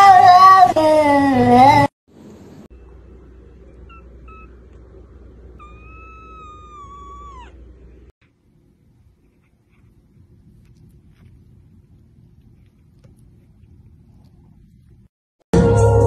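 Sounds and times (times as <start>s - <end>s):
kitten meowing: 5.6s - 7.6s.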